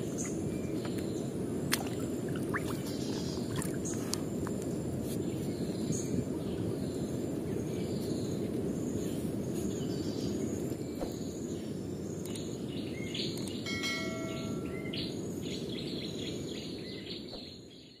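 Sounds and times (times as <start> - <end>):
birds chirping: 0.0 - 18.0
outdoor background noise: 0.0 - 18.0
notification chime: 13.7 - 15.0.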